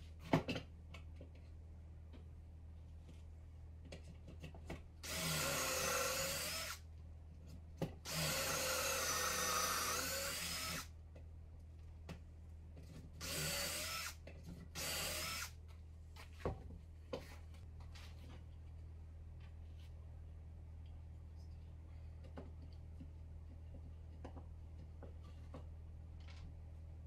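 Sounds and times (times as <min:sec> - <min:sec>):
cordless drill boring into wood: 0:05.0 - 0:06.8, 0:08.1 - 0:10.9, 0:13.2 - 0:14.2, 0:14.8 - 0:15.5.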